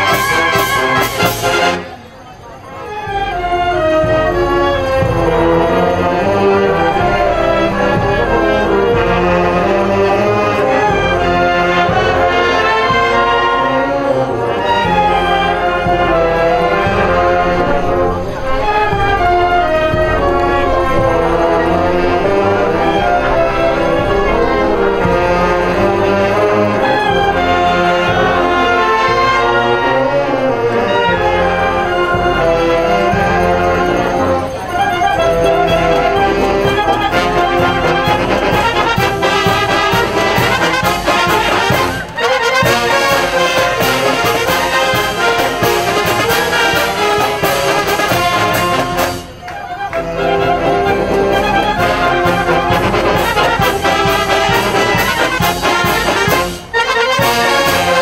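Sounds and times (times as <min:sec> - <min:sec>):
marching brass band playing: 0:00.0 - 0:58.0
steady drum beat: 0:36.6 - 0:49.3, 0:51.8 - 0:58.0.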